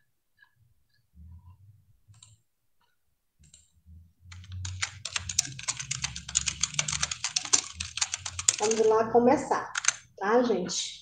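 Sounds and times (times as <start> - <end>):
typing on computer keyboard: 2.1 - 2.4, 3.4 - 3.7, 4.3 - 8.9, 9.6 - 10.1.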